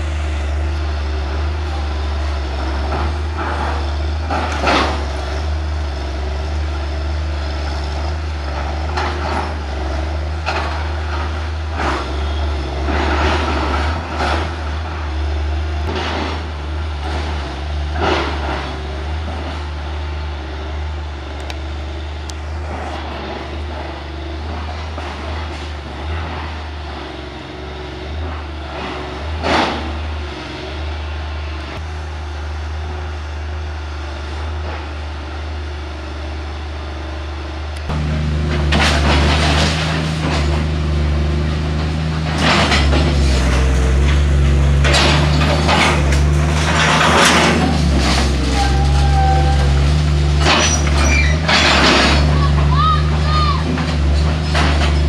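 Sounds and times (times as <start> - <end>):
excavator diesel engine running: 0.0 - 55.0
metal sheeting and timber crashing: 37.9 - 55.0.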